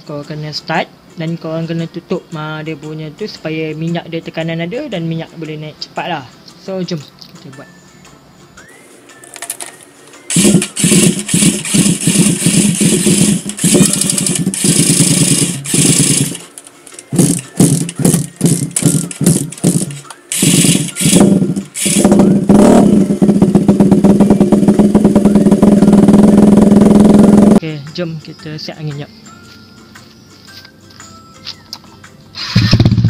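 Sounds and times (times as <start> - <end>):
motorcycle engine running steadily: 10.3 - 16.5, 17.1 - 27.6, 32.6 - 33.0
motorcycle engine cranking and sputtering: 10.3 - 27.6, 32.4 - 33.0.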